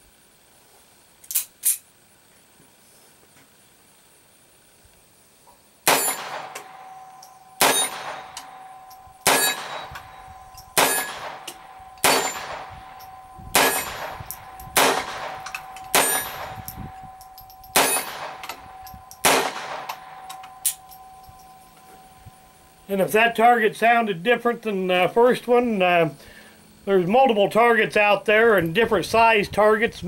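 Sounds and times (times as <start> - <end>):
pistol shots: 5.8 - 16.8, 17.7 - 20.9
steel target ringing: 5.9 - 22.9.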